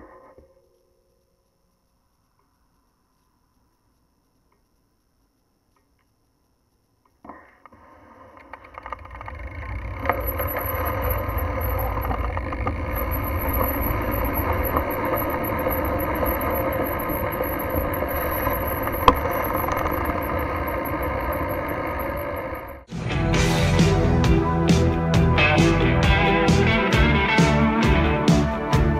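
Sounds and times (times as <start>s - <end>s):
bicycle riding noise: 7.8s - 22.9s.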